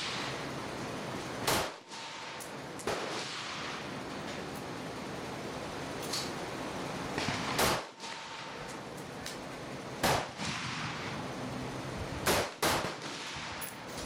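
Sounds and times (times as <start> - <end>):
rifle shots with echo: 1.4 - 4.0, 7.1 - 8.7, 10.0 - 11.4, 12.2 - 13.6.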